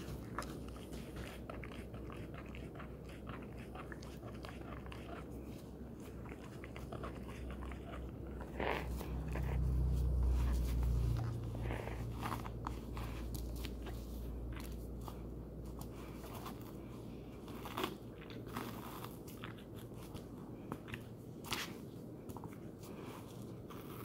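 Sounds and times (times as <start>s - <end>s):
dog chewing a tennis ball: 0.0s - 15.0s.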